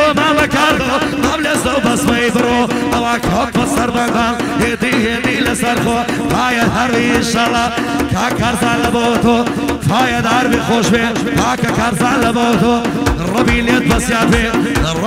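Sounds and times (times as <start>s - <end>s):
steady drum beat: 0.0s - 15.0s.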